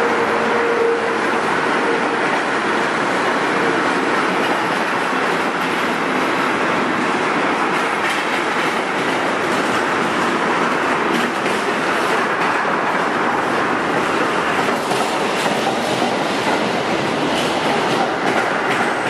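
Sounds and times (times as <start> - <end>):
freight train rumble and rattle: 0.0 - 19.0
wheels clacking over rail joints: 7.6 - 19.0.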